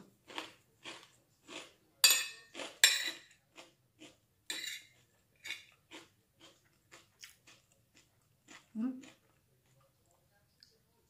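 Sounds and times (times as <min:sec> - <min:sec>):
chewing: 0:00.3 - 0:01.8, 0:04.8 - 0:10.8
metal spoon scraping a plate: 0:04.5 - 0:05.7.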